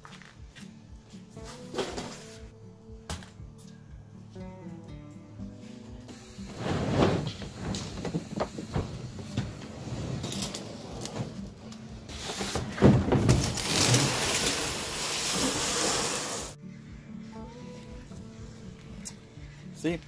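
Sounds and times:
plastic hull scraping: 0:06.5 - 0:16.6.

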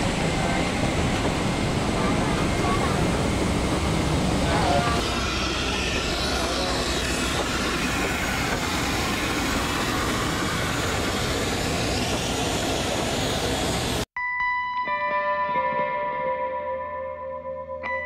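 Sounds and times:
jet and ground equipment rush: 0:00.0 - 0:14.1.

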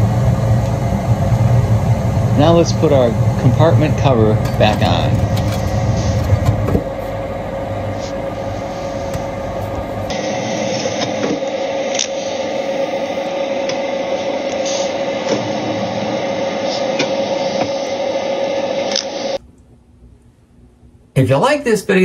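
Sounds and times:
deep rumble: 0:00.0 - 0:19.4
furnace fan motor humming: 0:00.0 - 0:21.4.

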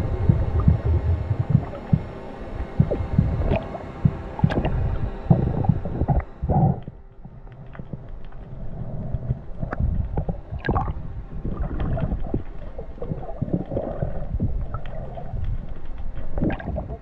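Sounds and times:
underwater rumble of moving water: 0:00.0 - 0:17.0
sharp underwater clicks: 0:11.6 - 0:17.0.

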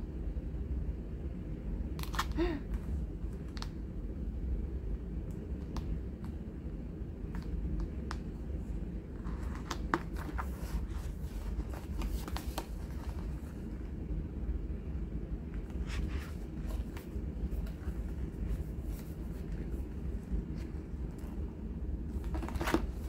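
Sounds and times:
steady low hum: 0:00.0 - 0:23.0
glossy pages rustling: 0:09.1 - 0:13.7, 0:15.6 - 0:21.4, 0:22.1 - 0:23.0.

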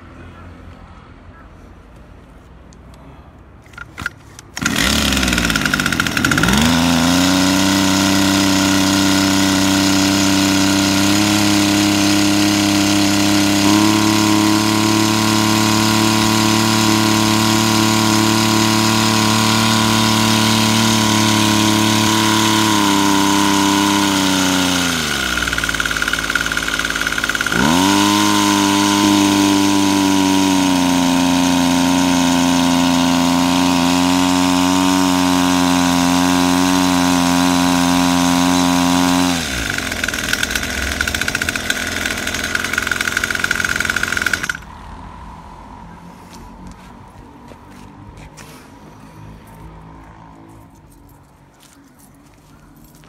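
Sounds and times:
small engine pull-started: 0:03.6 - 0:44.7
small engine revving: 0:03.7 - 0:44.8.

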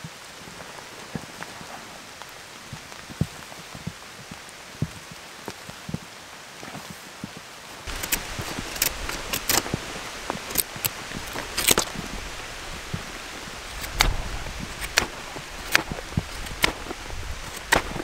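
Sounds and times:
rain hiss: 0:00.0 - 0:18.0
knife scraping wooden stick: 0:13.7 - 0:18.0.

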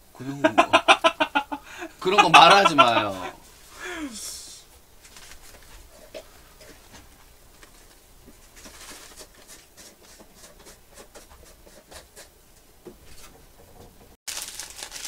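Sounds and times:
plastic pouch crinkling: 0:14.3 - 0:15.0.

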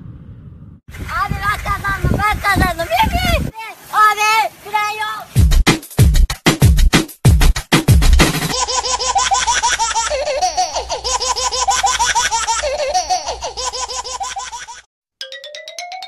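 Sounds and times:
music with heavy bass beat: 0:05.4 - 0:08.6
high-pitched laughter: 0:08.5 - 0:14.9.

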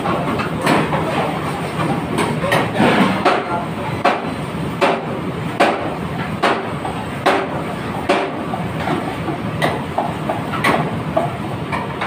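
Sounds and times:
sharp kitchen knocks: 0:02.5 - 0:08.4.

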